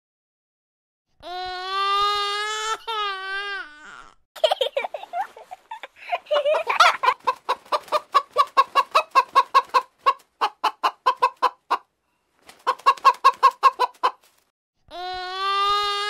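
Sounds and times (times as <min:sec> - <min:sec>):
hen clucking: 0:06.4 - 0:11.9, 0:12.6 - 0:14.3.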